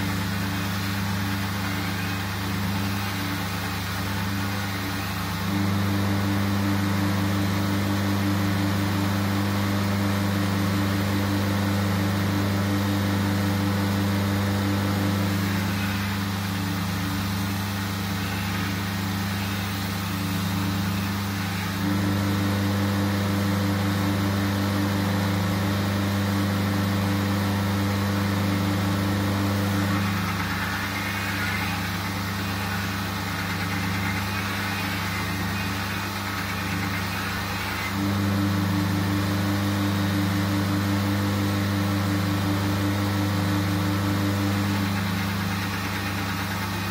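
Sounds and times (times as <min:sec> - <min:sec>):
belt grinder motor hum: 0:00.0 - 0:46.9.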